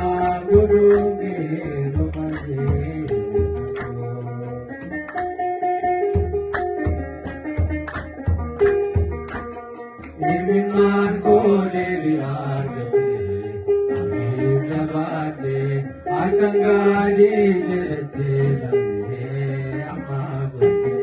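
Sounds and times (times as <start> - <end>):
men chanting a hymn: 0.0 - 4.6, 10.2 - 21.0.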